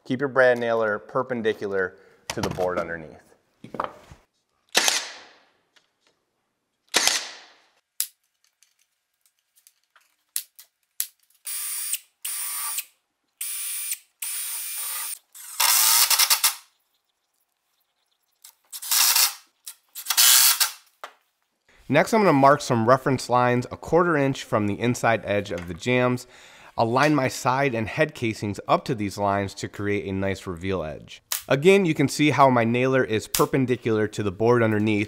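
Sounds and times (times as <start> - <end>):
nail gun shots: 4.7 - 5.4, 6.9 - 7.6
drill whirring: 11.4 - 16.6.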